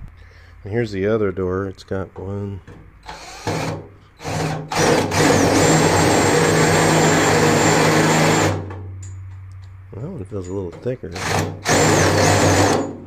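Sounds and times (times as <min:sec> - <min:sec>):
cordless drill whining into sheet steel: 0:03.0 - 0:08.6, 0:11.2 - 0:13.0.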